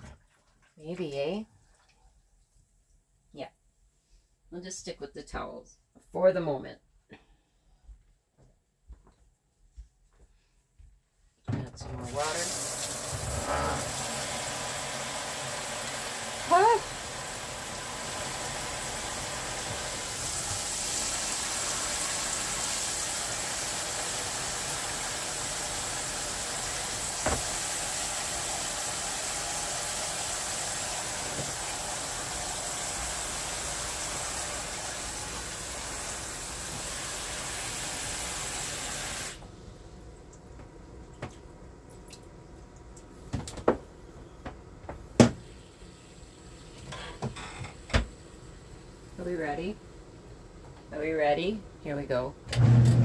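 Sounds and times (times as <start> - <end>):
water running into washing machine: 11.6 - 43.8.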